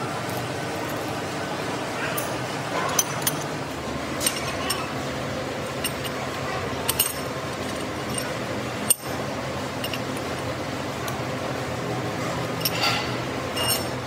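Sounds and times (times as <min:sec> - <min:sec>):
workshop hum: 0:00.0 - 0:14.0
metal clinks: 0:02.1 - 0:05.0, 0:05.6 - 0:11.2, 0:12.4 - 0:14.0.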